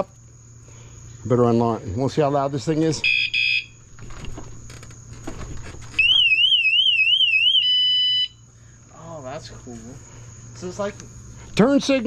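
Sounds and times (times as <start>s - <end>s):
electronic alarm warble: 3.0s - 3.8s, 6.0s - 8.4s
steady alarm beep: 3.0s - 3.8s, 6.0s - 8.4s
handling noise: 3.9s - 6.3s.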